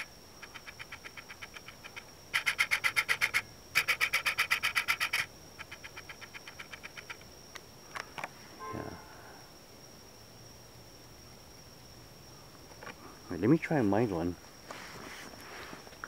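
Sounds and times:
rapid chirping calls: 0.0 - 7.3
thin high whine: 8.4 - 9.6.

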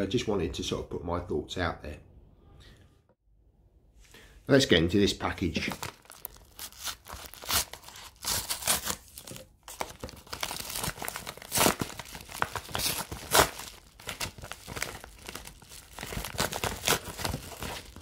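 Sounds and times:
paper crinkling and tearing: 5.6 - 18.0.

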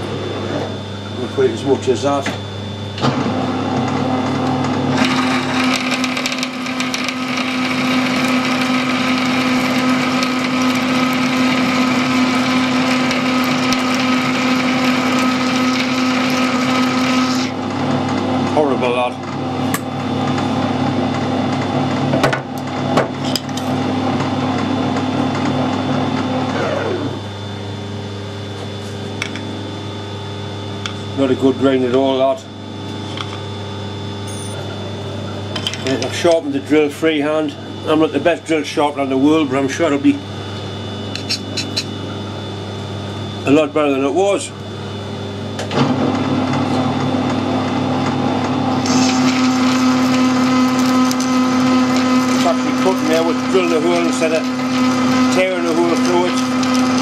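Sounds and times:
metal lathe motor hum: 0.0 - 57.0
lathe spinning down: 3.0 - 19.0, 23.8 - 27.5, 45.7 - 57.0
drill cutting steel: 4.9 - 17.6, 48.7 - 57.0.

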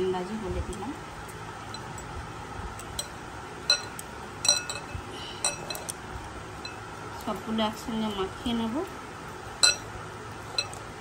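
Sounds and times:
rings clinking on glass bowl: 1.7 - 2.1, 2.9 - 5.9, 6.6 - 6.9, 9.6 - 9.9, 10.5 - 10.8.

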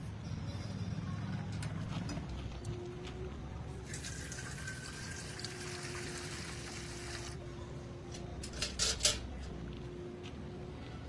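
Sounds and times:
water pouring into metal pan: 3.9 - 7.4.

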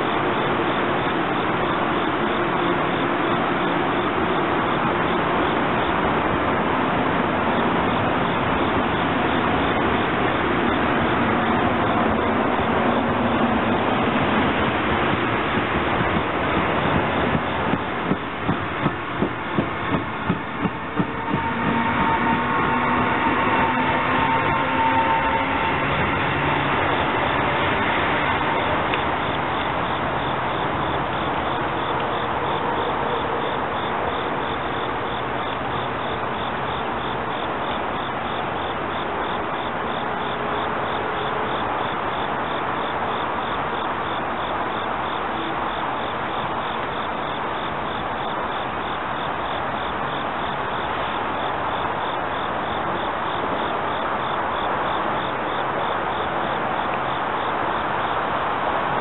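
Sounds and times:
electric train running: 0.0 - 38.9
constant hiss: 0.0 - 59.0
insects chirping: 0.0 - 59.0.

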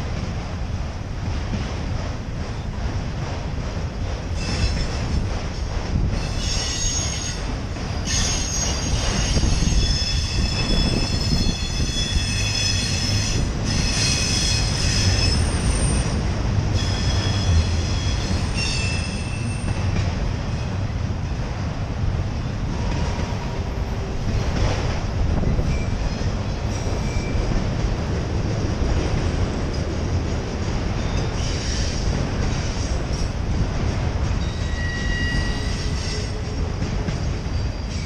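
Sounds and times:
steel wheels squealing: 4.4 - 5.0, 6.2 - 20.0, 25.6 - 27.5, 31.0 - 33.3, 34.4 - 38.0.

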